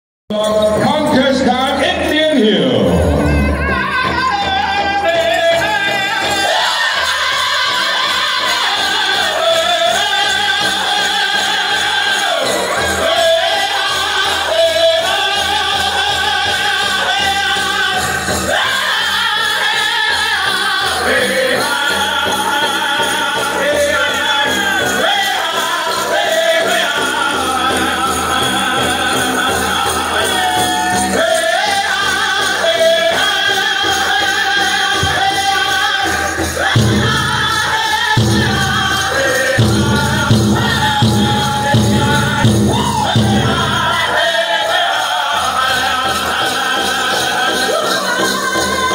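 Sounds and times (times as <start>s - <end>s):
jingle of dancers' bells: 0.3s - 48.9s
group singing high-pitched in unison: 3.0s - 48.9s
big drum beating: 34.1s - 44.3s.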